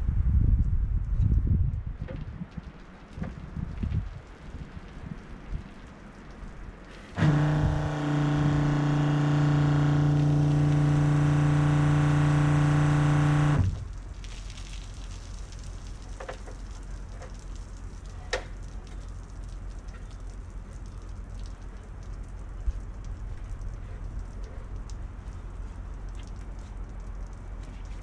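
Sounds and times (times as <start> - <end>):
pump humming: 7.1 - 13.9.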